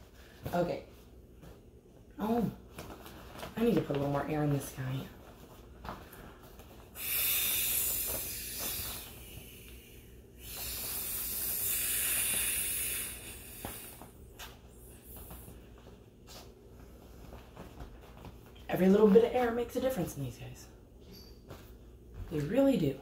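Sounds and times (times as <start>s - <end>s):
breath blown into inflatable toy: 6.9s - 14.2s.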